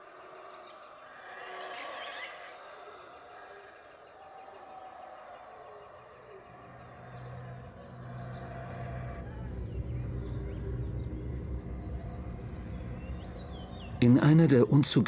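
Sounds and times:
birds chirping and calling: 0.0 - 15.0
low drone: 6.4 - 15.0.

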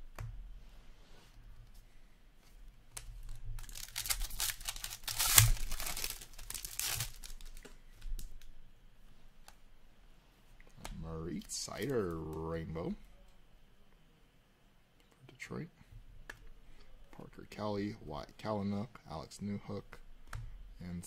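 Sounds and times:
foil wrapper tearing and crinkling: 3.2 - 7.6.

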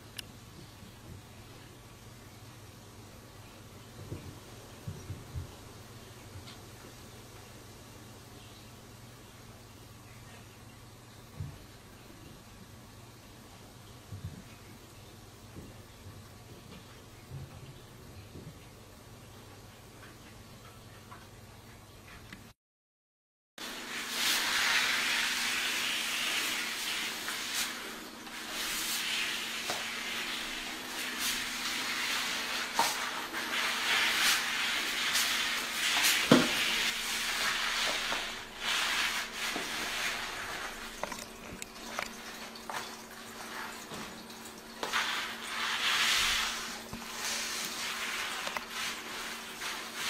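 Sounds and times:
faint steady hum: 0.0 - 22.6.

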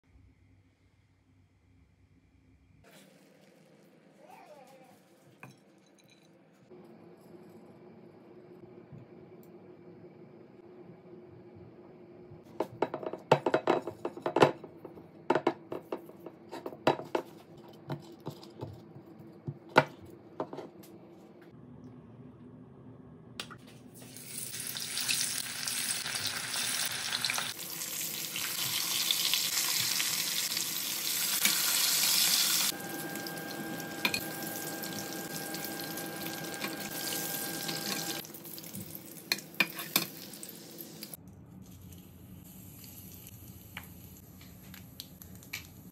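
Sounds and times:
fish sizzling in hot oil: 24.0 - 41.2.

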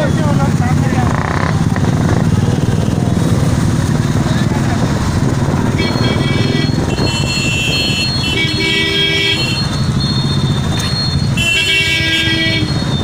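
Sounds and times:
motorcycle engines running: 0.0 - 13.0
motorcycle horns honking: 5.7 - 13.0.

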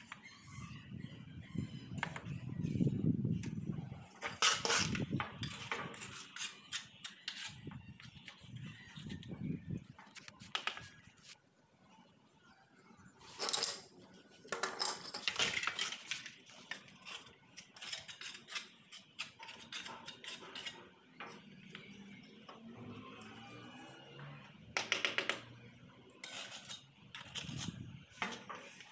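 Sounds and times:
ceramic tiles clicking and clinking: 14.5 - 16.3.

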